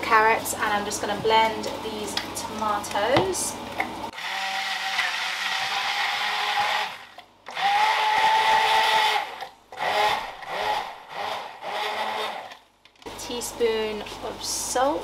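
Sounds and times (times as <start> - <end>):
immersion blender motor whining: 4.1 - 12.6.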